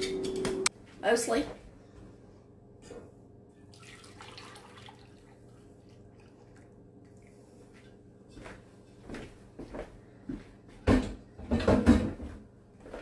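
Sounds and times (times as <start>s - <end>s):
juice pouring through a strainer: 3.7s - 7.8s.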